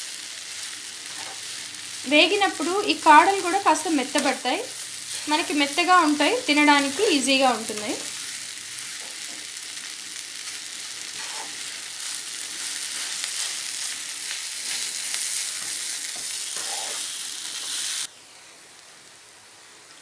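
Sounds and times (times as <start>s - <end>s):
food sizzling in oil: 0.0s - 20.0s
spoon stirring in a pan: 1.0s - 1.5s, 11.0s - 13.8s, 15.6s - 17.1s.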